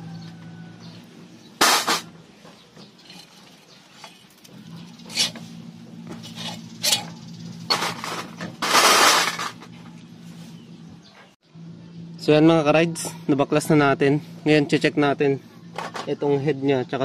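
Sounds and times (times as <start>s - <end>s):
parts clattering in metal tray: 1.6s - 2.1s, 2.8s - 5.4s, 6.2s - 9.8s
metal engine parts clinking: 1.6s - 10.0s
loud metal scrape: 3.0s - 5.6s, 6.2s - 9.7s.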